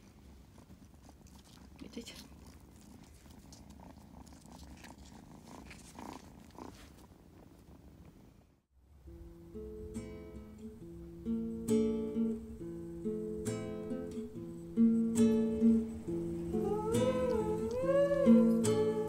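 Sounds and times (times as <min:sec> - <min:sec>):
acoustic guitar strumming chords: 0:09.0 - 0:19.0
gliding pitched sound: 0:09.0 - 0:19.0.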